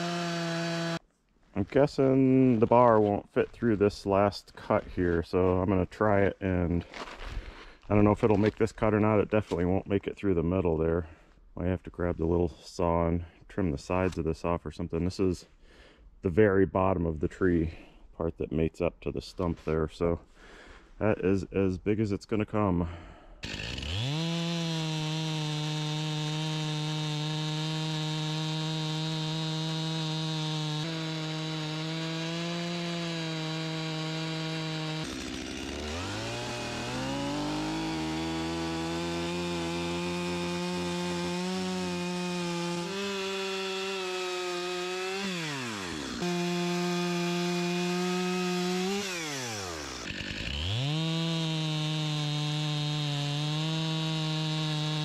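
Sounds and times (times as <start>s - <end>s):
chainsaw cutting log: 0.0s - 1.0s, 23.4s - 55.0s.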